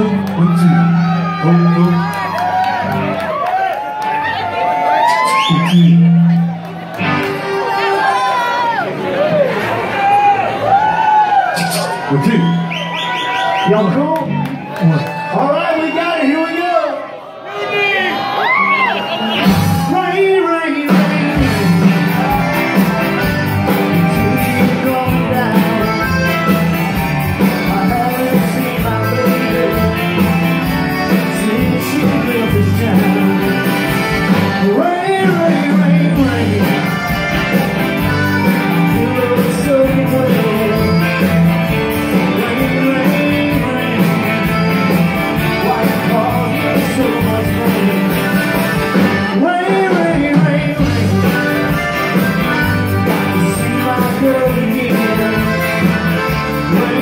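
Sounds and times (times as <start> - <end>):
electric guitars: 0.0 - 15.3, 18.2 - 57.0
drums: 0.0 - 16.7, 18.3 - 57.0
live country-rock band: 0.0 - 57.0
button accordion: 22.4 - 34.7, 36.2 - 39.6, 40.3 - 49.8, 50.8 - 57.0.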